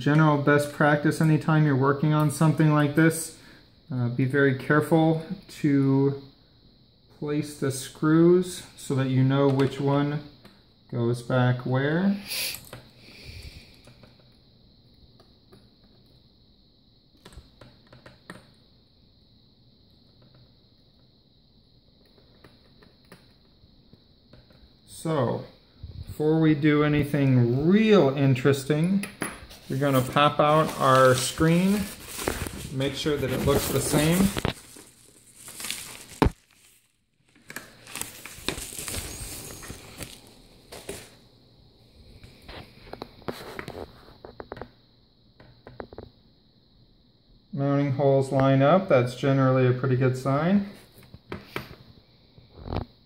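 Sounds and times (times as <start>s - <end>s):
faint high-pitched hiss: 0.0s - 53.0s
paper envelope crinkling: 29.5s - 41.2s.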